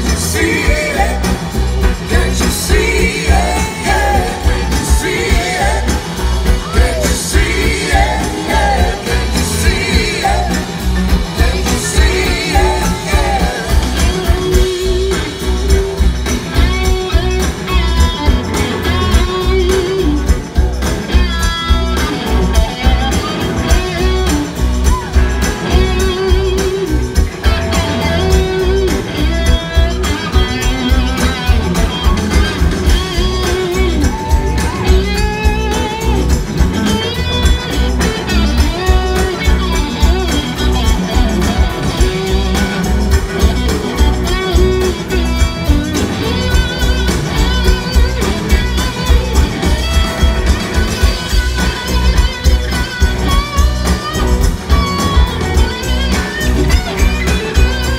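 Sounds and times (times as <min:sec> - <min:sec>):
person singing: 0:00.0 - 0:15.3
live blues-rock band: 0:00.0 - 0:57.9
sustained electric guitar lines: 0:00.0 - 0:57.9.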